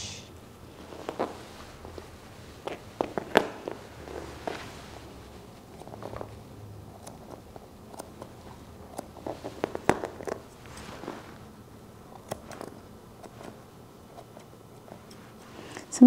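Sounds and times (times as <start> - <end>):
faint rustling: 0.6 - 6.6, 7.2 - 16.0
shears snipping fur: 2.6 - 11.4, 12.0 - 15.8.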